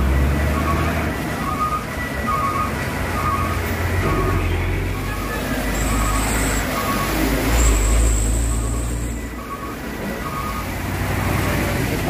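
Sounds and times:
traffic on wet road: 0.0s - 12.0s
truck engine rumbling: 0.0s - 12.0s.

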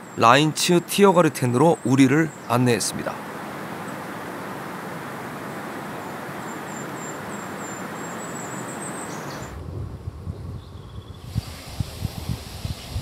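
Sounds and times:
insects chirping: 1.6s - 9.6s
rushing hiss: 11.2s - 13.0s.

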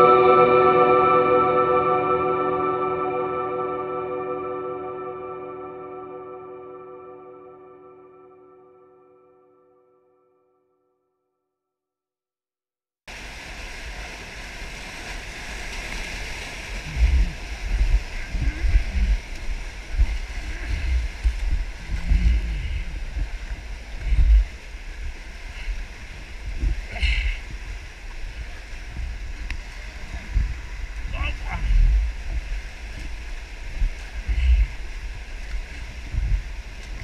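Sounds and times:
whitewater rushing: 13.1s - 37.0s
low thumps on microphone: 24.0s - 24.5s, 36.0s - 37.0s.

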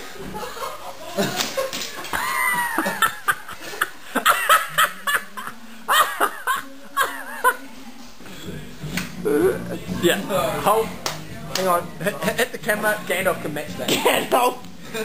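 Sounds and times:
people laughing: 0.1s - 7.8s.

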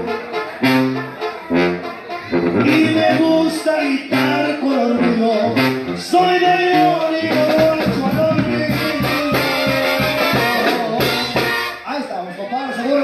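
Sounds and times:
live band with brass and clarinet: 0.0s - 12.0s
steady drum beat: 2.4s - 3.6s, 4.3s - 11.8s.

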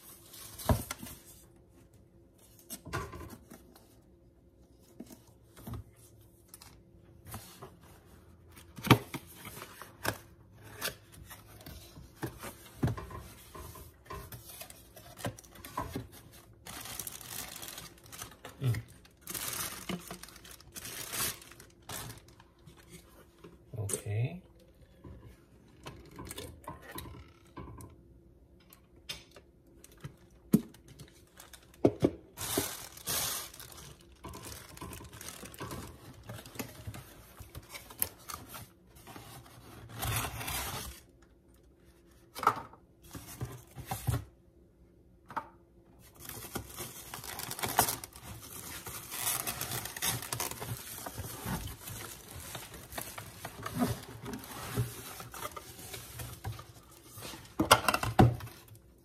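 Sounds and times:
plastic wrapping crinkling: 14.6s - 23.1s, 29.8s - 38.5s, 46.0s - 57.5s
cardboard rustling and scraping: 31.4s - 41.1s, 46.1s - 57.7s.

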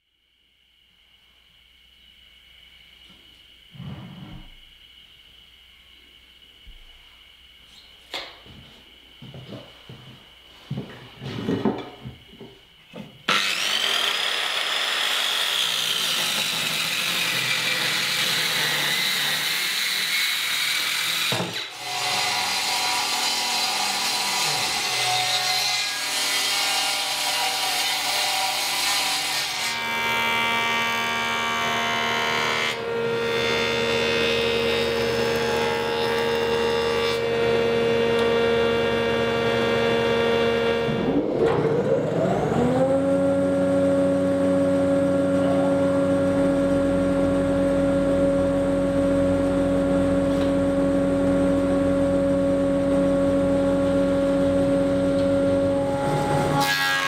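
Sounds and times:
circular saw whining cut: 13.3s - 57.0s
woodworking machine spinning up: 33.7s - 56.8s.

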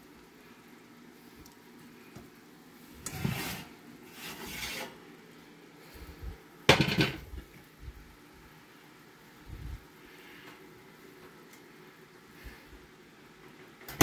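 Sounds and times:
metal oven rack and pan scraping: 3.0s - 5.0s.

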